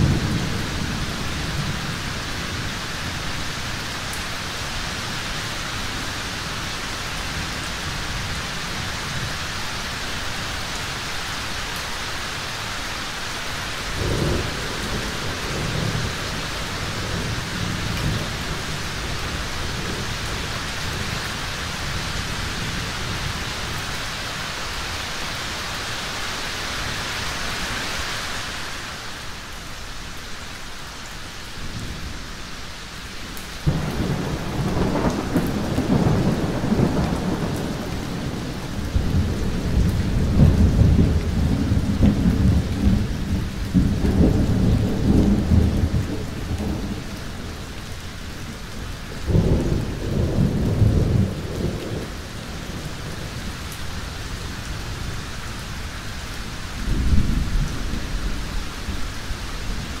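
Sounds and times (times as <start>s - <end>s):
steady rain: 0.0s - 60.0s
rolling thunder: 13.9s - 21.3s, 33.6s - 47.6s, 49.3s - 53.5s.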